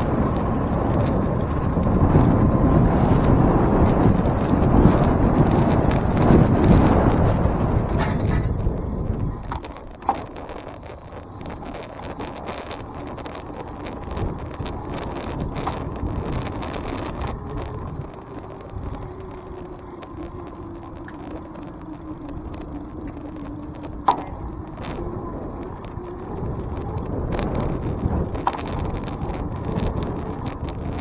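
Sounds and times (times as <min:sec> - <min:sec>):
street traffic noise: 0:00.0 - 0:31.0
vehicle hum: 0:00.0 - 0:31.0.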